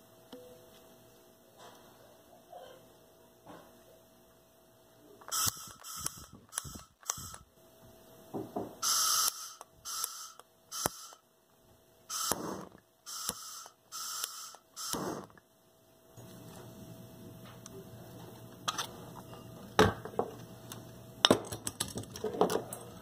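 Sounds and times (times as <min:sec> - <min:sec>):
gas torch hissing: 0:05.2 - 0:07.5, 0:08.8 - 0:11.2, 0:12.1 - 0:15.4.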